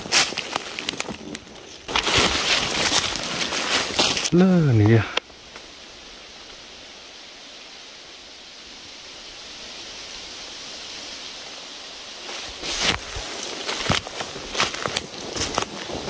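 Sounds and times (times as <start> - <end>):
footsteps crunching dry leaves: 0.0 - 4.9, 12.1 - 16.0
outdoor hiss: 1.9 - 16.0.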